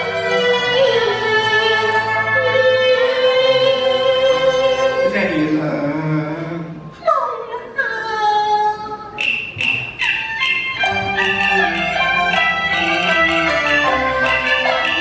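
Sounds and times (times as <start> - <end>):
ensemble accompaniment: 9.2 - 15.0
sharp percussion clicks: 9.2 - 15.0.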